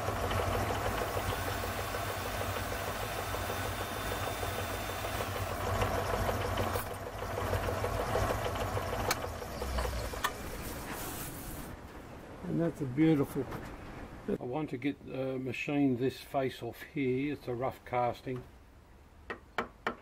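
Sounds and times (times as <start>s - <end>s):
metal lathe whirring: 0.0s - 10.5s.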